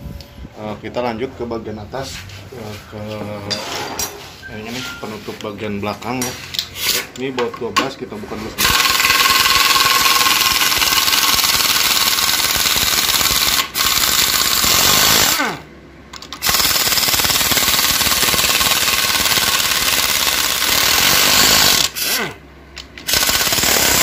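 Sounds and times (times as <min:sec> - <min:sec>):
impact wrench hammering: 0:08.6 - 0:15.4, 0:16.2 - 0:22.2, 0:22.8 - 0:24.0
impact wrench spinning down: 0:08.6 - 0:15.6, 0:16.2 - 0:24.0.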